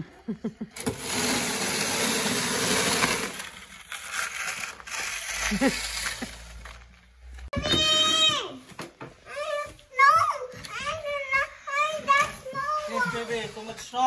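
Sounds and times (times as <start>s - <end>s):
snow shovel scraping concrete: 0.8s - 6.5s.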